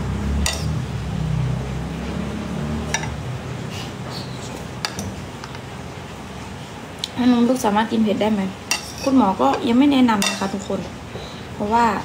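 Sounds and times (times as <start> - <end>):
metal spoon clinking on bowl: 0.4 - 0.7, 8.7 - 10.8.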